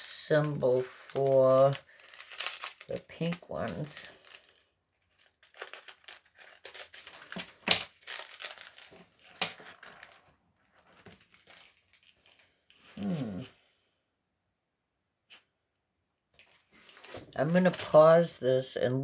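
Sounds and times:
plastic crinkling and rustling: 0:00.2 - 0:13.2, 0:16.4 - 0:18.4.

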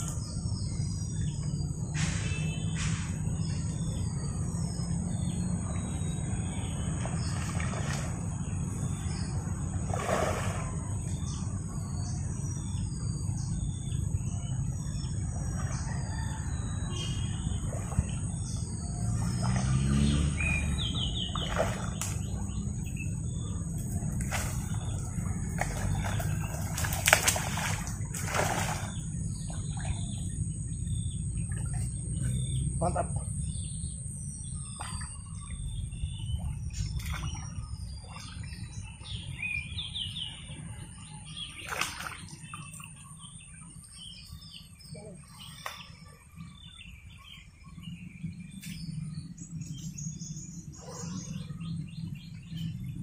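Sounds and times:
steady low rumble: 0:00.0 - 0:41.5
birds chirping: 0:00.0 - 0:53.0
insect drone: 0:01.9 - 0:38.0
fishing lure splashing on water: 0:25.5 - 0:29.0, 0:41.6 - 0:42.4.

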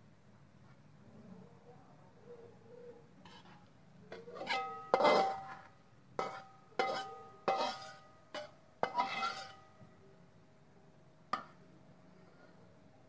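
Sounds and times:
metal spatula clanking against wok: 0:04.1 - 0:09.7.

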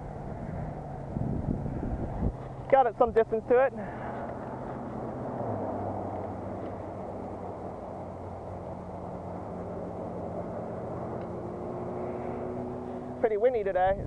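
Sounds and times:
faint low engine hum: 0:00.0 - 0:14.0
wind blowing on microphone: 0:00.2 - 0:02.6.

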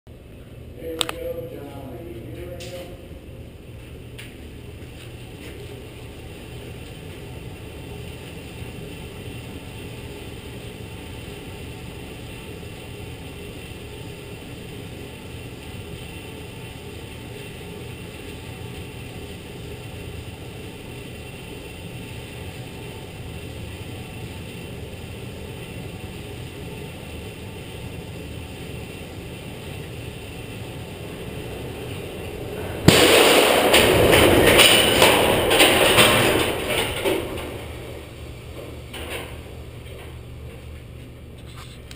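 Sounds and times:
elevator mechanical hum: 0:00.1 - 0:41.9
elevator car striking buffer: 0:32.8 - 0:39.4.

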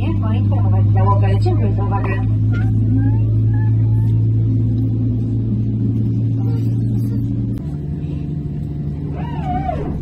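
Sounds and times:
low hum of airplane cabin: 0:00.0 - 0:10.0.

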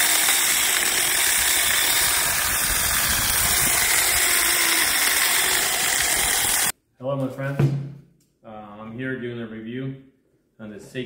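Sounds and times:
chainsaw cutting log: 0:00.0 - 0:06.7.

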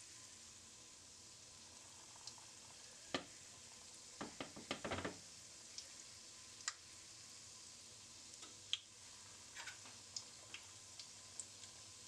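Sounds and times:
dough frying in hot oil: 0:00.0 - 0:12.0
oil crackles and pops: 0:01.5 - 0:07.0, 0:08.2 - 0:12.0.

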